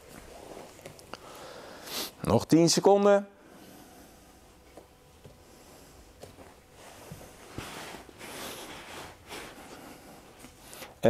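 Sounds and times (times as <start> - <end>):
rustling of heavy cotton clothing: 0.0 - 1.0, 5.4 - 10.7.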